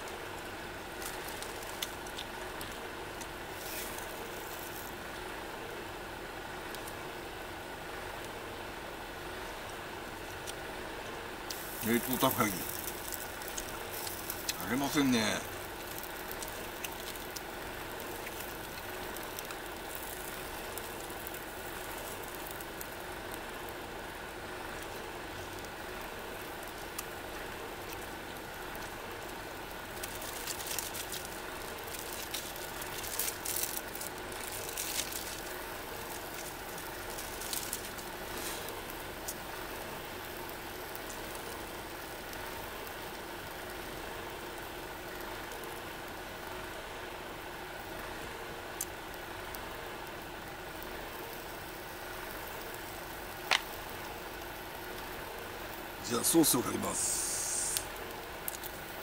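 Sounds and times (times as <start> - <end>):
gas stove hissing and humming: 0.0 - 59.0
food sizzling in frying pan: 3.5 - 5.0, 11.5 - 43.8, 56.1 - 59.0.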